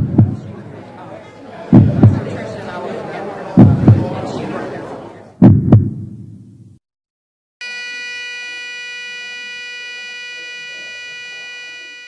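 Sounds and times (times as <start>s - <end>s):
heavy heartbeat thump: 0.0s - 0.5s, 1.7s - 2.3s, 3.6s - 4.1s, 5.4s - 6.5s.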